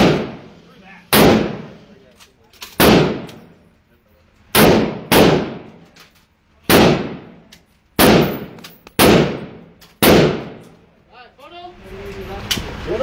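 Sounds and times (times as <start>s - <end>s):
gunshots with ringing decay: 0.0s - 1.8s, 2.8s - 3.5s, 4.5s - 5.8s, 6.6s - 10.8s.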